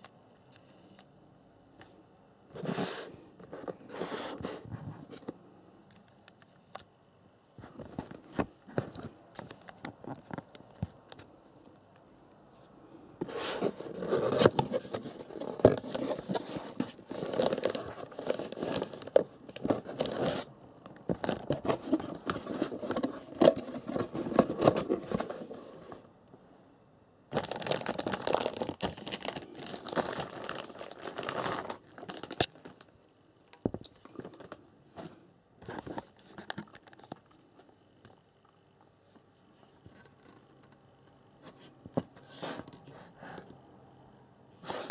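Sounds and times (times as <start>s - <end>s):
plastic bag crinkling: 13.8s - 20.5s, 27.3s - 32.9s.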